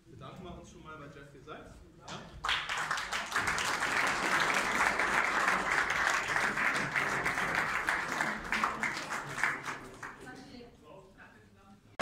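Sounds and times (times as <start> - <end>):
audience applauding: 2.4 - 10.3.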